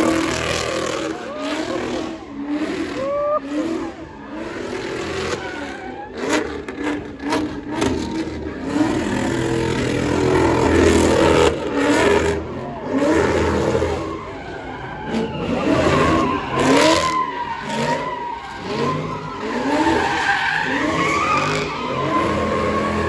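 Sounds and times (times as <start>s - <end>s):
car engine revving: 0.0s - 23.0s
tyres spinning on asphalt: 0.0s - 23.0s.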